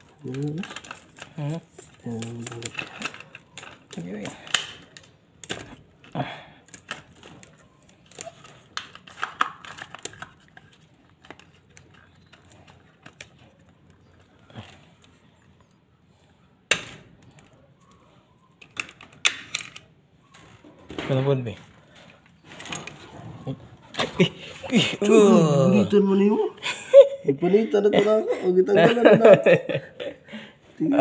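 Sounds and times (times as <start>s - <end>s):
pliers clicking and snapping wire: 0.1s - 10.3s.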